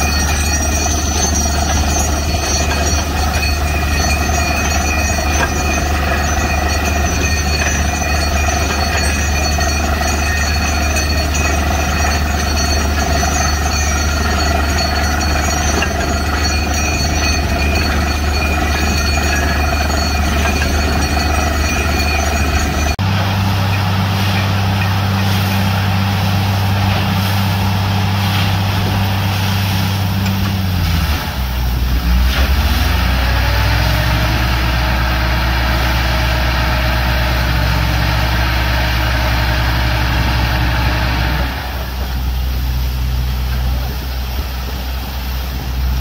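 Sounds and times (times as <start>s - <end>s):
high-pitched whine: 0.0s - 32.2s
drilling rig low drone: 0.0s - 46.0s.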